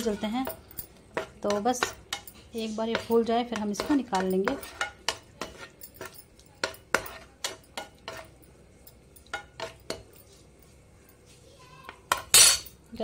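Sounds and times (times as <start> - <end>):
metal spoon scraping a pan: 0.0 - 10.4, 11.9 - 12.8
raisins frying: 0.0 - 13.0.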